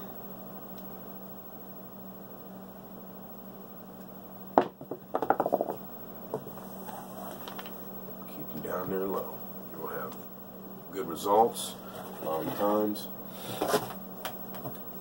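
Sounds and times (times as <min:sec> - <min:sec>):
dice knocking on table: 0:04.6 - 0:05.8.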